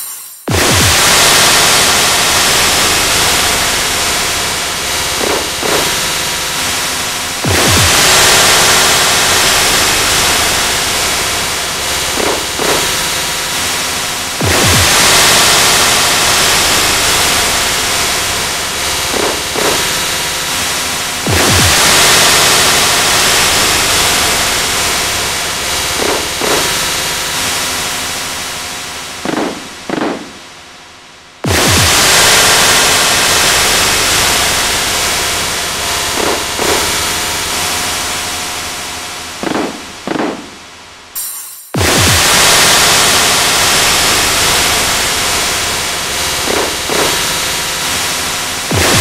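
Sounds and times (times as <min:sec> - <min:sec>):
harsh static noise: 0:00.0 - 0:41.2, 0:41.8 - 0:49.0
static hiss: 0:42.0 - 0:49.0.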